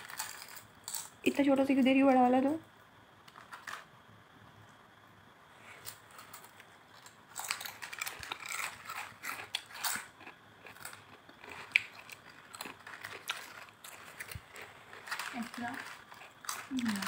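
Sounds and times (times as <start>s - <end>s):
chewing crunchy chips: 0.0s - 1.2s, 5.8s - 17.0s
foil packet crinkling: 6.1s - 17.0s.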